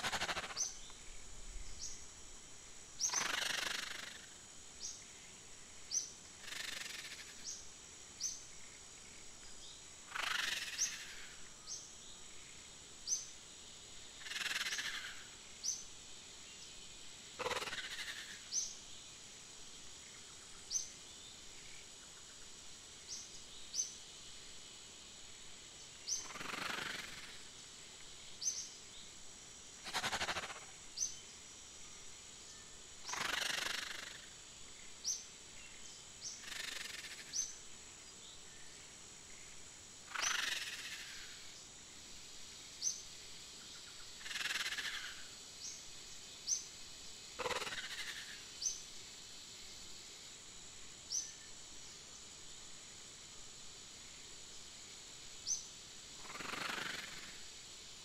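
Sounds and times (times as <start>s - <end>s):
high insect-like drone: 0.0s - 9.3s, 10.1s - 13.3s, 17.4s - 18.7s, 26.1s - 27.5s, 33.0s - 35.2s, 36.2s - 38.1s, 39.2s - 41.6s, 42.4s - 45.8s, 47.3s - 52.0s, 54.9s - 58.0s.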